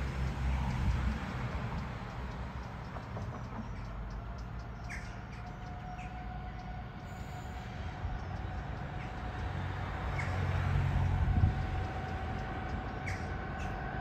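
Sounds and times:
diesel locomotive engine rumble: 0:00.0 - 0:14.0
birds chirping: 0:00.1 - 0:14.0.

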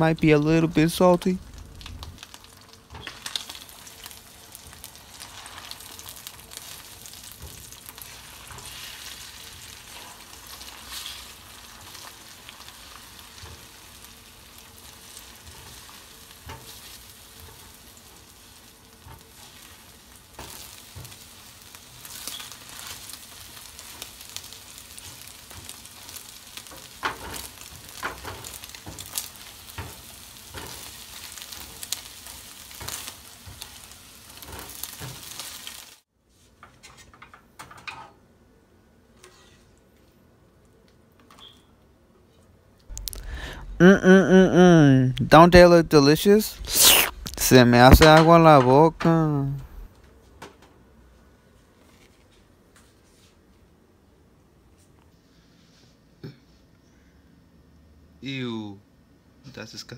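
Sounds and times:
eggs sizzling in a frying pan: 0:00.0 - 0:36.1, 0:42.9 - 0:44.4.

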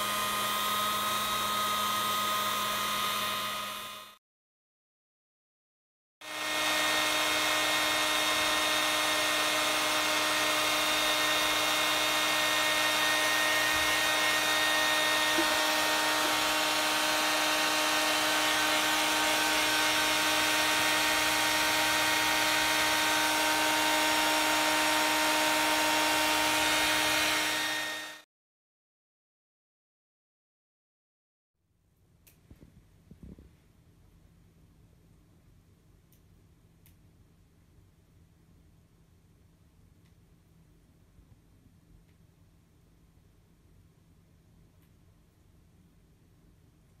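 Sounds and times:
hair dryer running: 0:00.0 - 0:04.2, 0:06.2 - 0:28.3.

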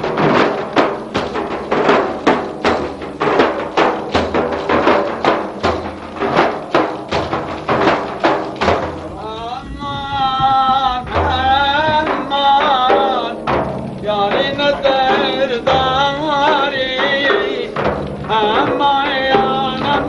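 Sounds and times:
frame drums beating: 0:00.0 - 0:20.0
man chanting: 0:08.8 - 0:20.0.

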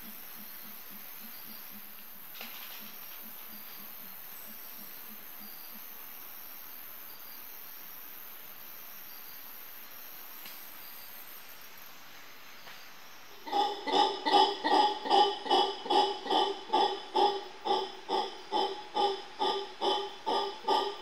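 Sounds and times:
insects chorus: 0:00.0 - 0:21.0
faint click: 0:10.4 - 0:10.7.

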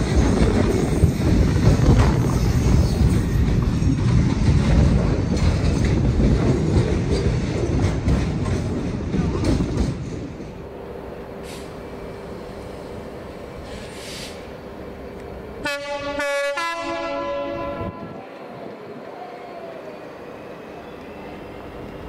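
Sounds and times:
wheels clicking over rail joints: 0:00.0 - 0:10.7
train running past: 0:00.0 - 0:22.0.

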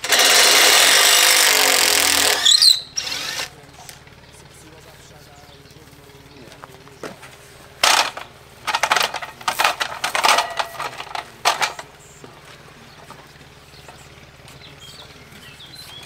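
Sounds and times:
ratchet spanner clicking: 0:00.0 - 0:04.0, 0:07.8 - 0:11.8.

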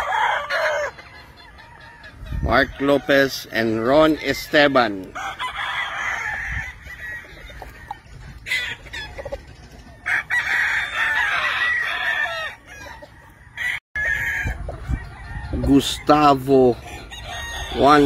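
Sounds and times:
roosters crowing: 0:00.0 - 0:18.0.

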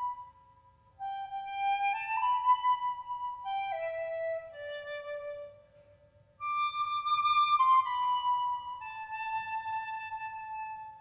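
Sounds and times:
solo flute melody: 0:00.0 - 0:11.0.

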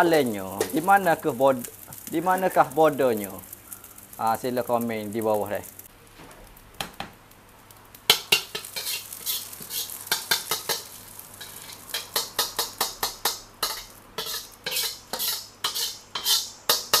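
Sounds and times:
ladle scraping a metal wok: 0:08.3 - 0:17.0.

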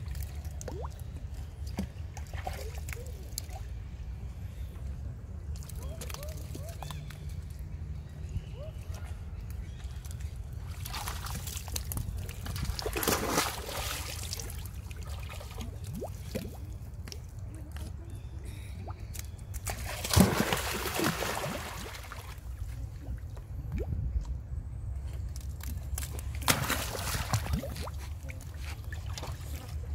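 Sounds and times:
water dripping: 0:00.0 - 0:01.9
water splashing and sloshing: 0:00.0 - 0:04.6, 0:05.4 - 0:29.9
steady low rumble: 0:22.1 - 0:26.7.

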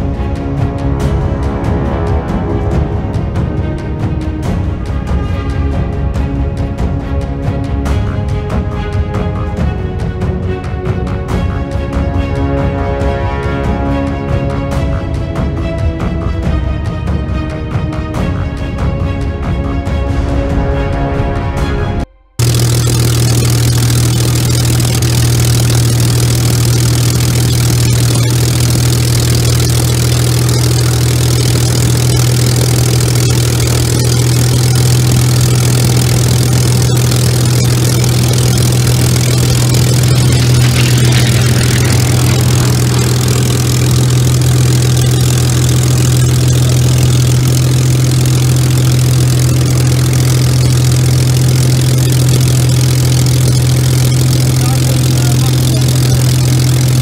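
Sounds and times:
aircraft engine idling: 0:22.4 - 0:57.0.

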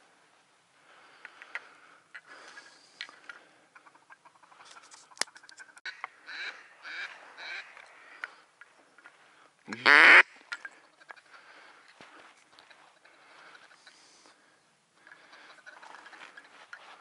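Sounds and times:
ducks quacking: 0:03.4 - 0:08.4, 0:09.7 - 0:11.8, 0:15.0 - 0:17.0.

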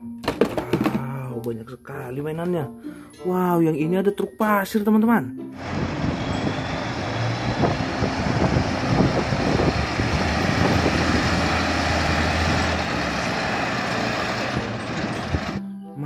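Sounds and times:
truck diesel engine labouring: 0:05.6 - 0:15.6.

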